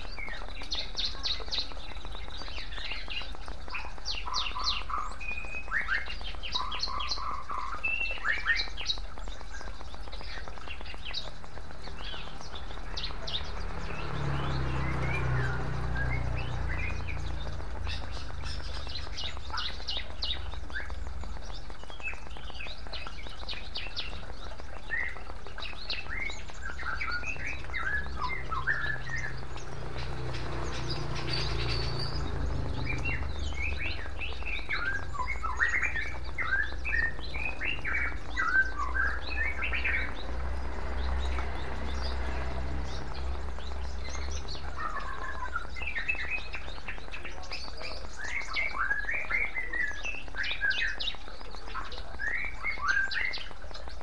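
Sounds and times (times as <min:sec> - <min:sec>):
songbirds chirping: 0:00.0 - 0:54.0
water trickling into a bowl: 0:00.0 - 0:54.0.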